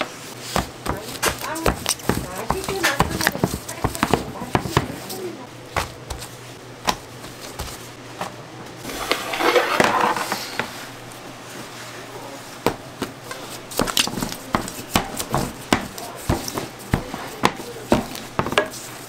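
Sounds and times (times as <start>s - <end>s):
utensils and trays clattering: 0.9s - 5.5s
rustling and scraping: 8.8s - 19.0s.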